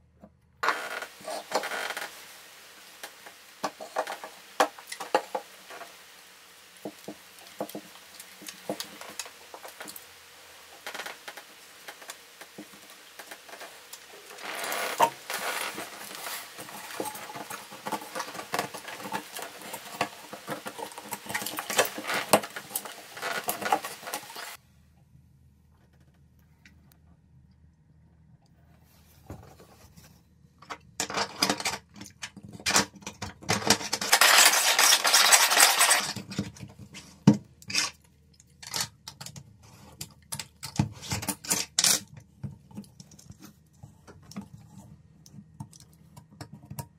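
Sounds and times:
fingers greasing drain parts: 0:00.6 - 0:24.6.

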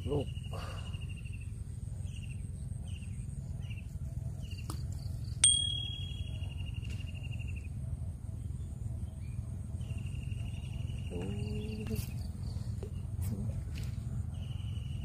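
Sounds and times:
insects trilling: 0:00.0 - 0:03.8, 0:09.2 - 0:13.2
low outdoor rumble: 0:00.0 - 0:15.0
fishing bell ringing: 0:05.4 - 0:06.7.

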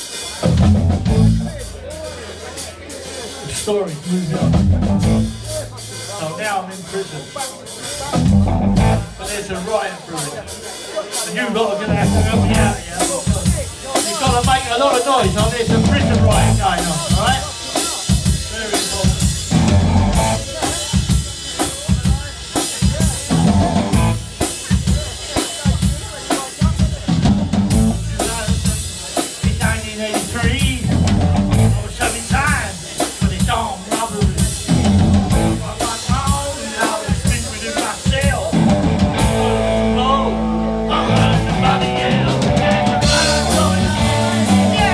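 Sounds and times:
drum kit beat: 0:00.0 - 0:44.9
electric guitars: 0:08.1 - 0:09.3, 0:19.1 - 0:21.1, 0:23.3 - 0:24.4, 0:34.3 - 0:35.8, 0:38.5 - 0:44.9.

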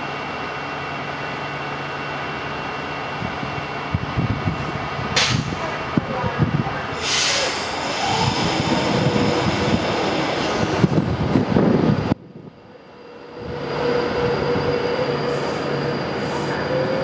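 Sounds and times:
electric train whine: 0:07.0 - 0:17.0.

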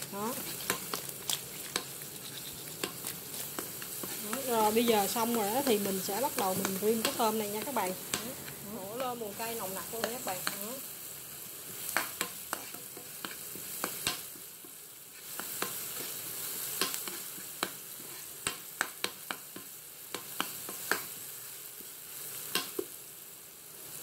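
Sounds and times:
garlic sizzling in hot oil: 0:00.0 - 0:24.0
utensil clicking against pan: 0:00.6 - 0:08.3.

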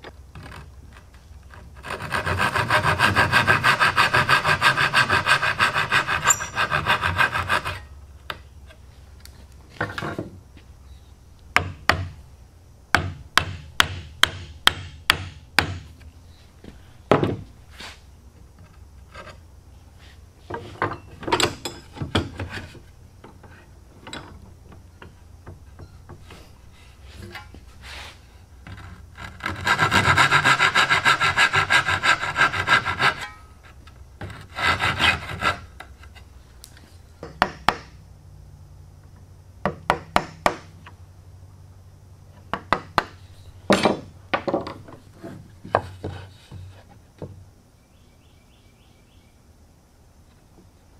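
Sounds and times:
hand saw cutting wood: 0:01.5 - 0:07.9, 0:28.7 - 0:33.4, 0:34.2 - 0:36.0.

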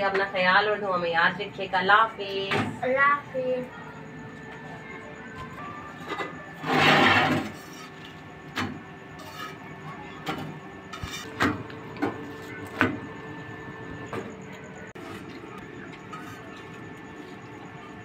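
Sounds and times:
metal spatula scraping a griddle: 0:06.6 - 0:08.2, 0:09.1 - 0:09.7, 0:10.3 - 0:11.4, 0:16.0 - 0:16.7.

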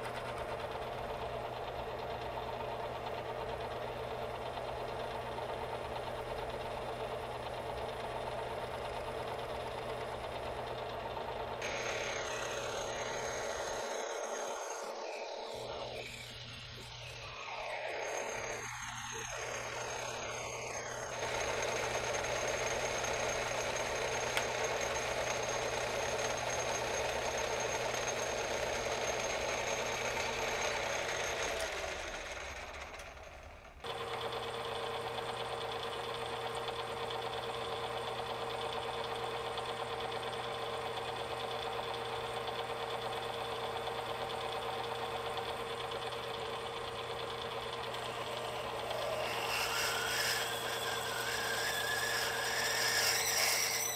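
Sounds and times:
metal lathe running: 0:00.0 - 0:53.9
drill feeding into metal bar: 0:11.5 - 0:53.9.

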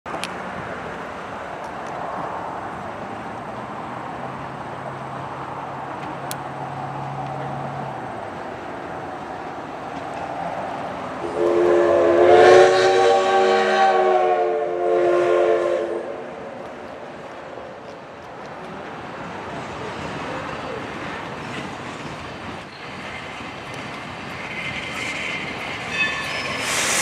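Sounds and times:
train rumble: 0:00.1 - 0:27.0
steam locomotive chime whistle: 0:11.2 - 0:16.2, 0:25.9 - 0:27.0.

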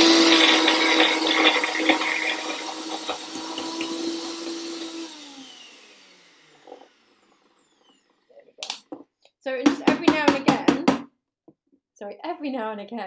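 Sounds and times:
blender motor winding down: 0:00.0 - 0:08.6
blender motor humming: 0:00.0 - 0:08.9.

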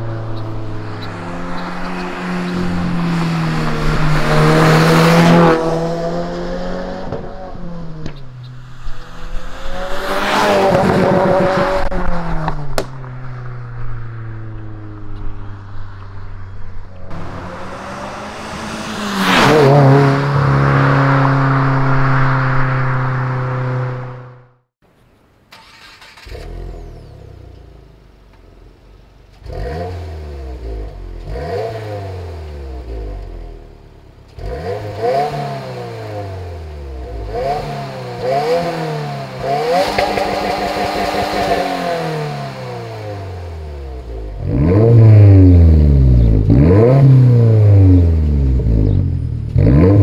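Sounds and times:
car engine driving past: 0:00.0 - 0:24.6.

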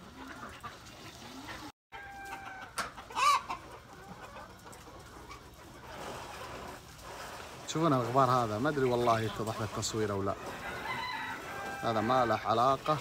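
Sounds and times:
chicken squawking: 0:00.0 - 0:04.5
chickens clucking: 0:00.0 - 0:13.0.

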